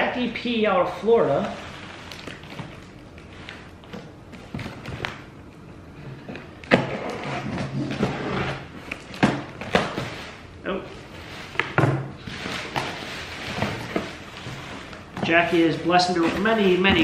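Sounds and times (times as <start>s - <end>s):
cardboard flaps rustling: 6.4s - 17.0s.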